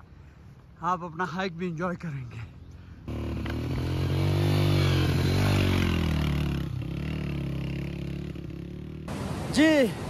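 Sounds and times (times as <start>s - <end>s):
motorcycle engine running: 3.0s - 9.2s.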